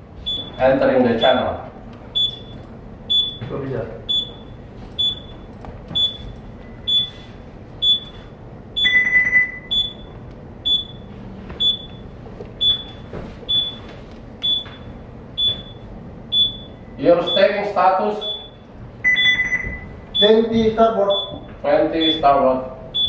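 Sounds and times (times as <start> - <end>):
short high electronic alarm beeps: 2.2 - 3.5, 4.1 - 5.4, 6.0 - 12.0, 15.4 - 17.6, 18.2 - 20.4, 21.0 - 22.3
longer low alarm tone: 8.8 - 17.6, 18.2 - 23.0.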